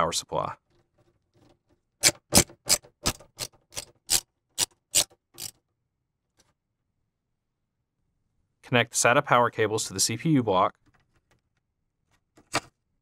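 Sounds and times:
screwdriver clicking: 2.0 - 5.6.

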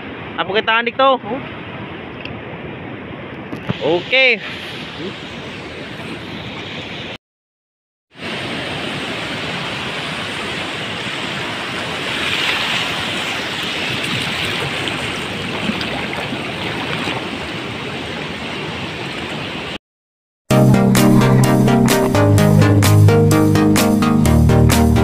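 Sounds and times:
shallow water washing and splashing: 8.2 - 19.8.

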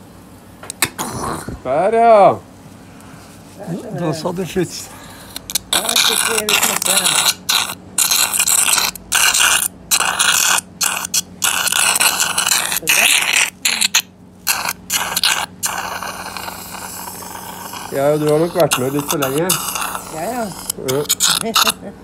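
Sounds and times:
surgical suction hissing: 4.9 - 21.8.

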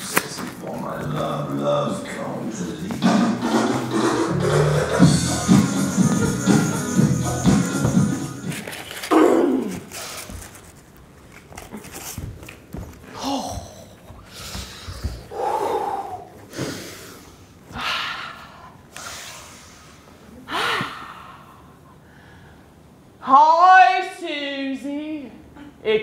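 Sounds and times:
low thumps: 2.8 - 8.5
woman breathing and gasping: 13.2 - 22.7.

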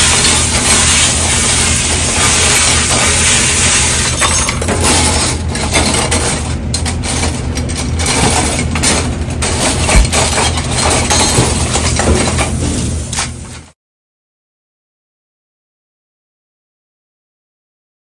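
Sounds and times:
cutlery clinking in a dish rack: 0.0 - 13.6.

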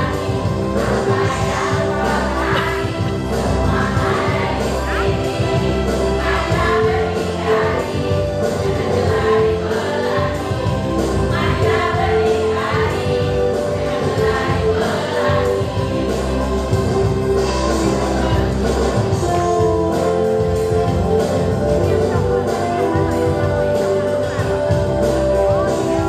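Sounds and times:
women singing in chorus: 0.0 - 16.4
music with steady beat: 0.0 - 26.0.

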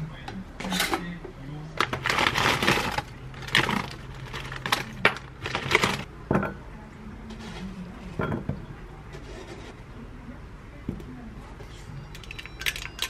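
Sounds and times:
berries rattling in metal strainer: 1.8 - 6.1.

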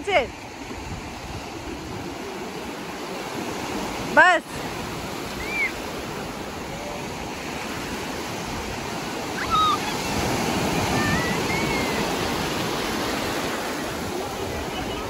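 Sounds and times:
sea surf breaking: 0.0 - 15.0.

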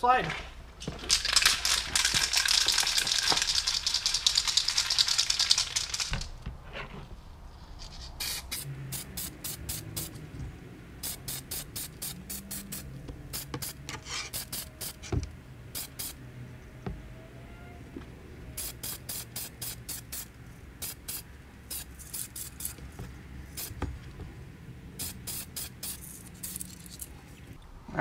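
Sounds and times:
aerosol can spraying: 8.2 - 10.2, 11.0 - 16.2, 18.6 - 23.9, 25.0 - 26.8.

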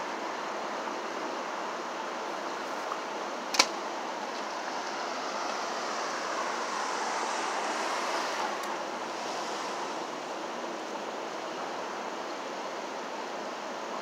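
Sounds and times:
city street traffic: 0.0 - 14.0
sharp click: 3.5 - 3.8.

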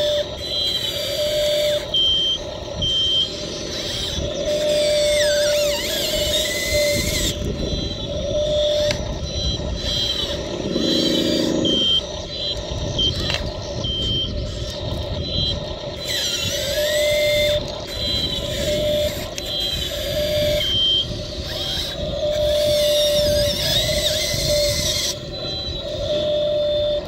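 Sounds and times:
small electric motors whining: 0.0 - 27.0
rough grinding undertone: 3.3 - 12.5.

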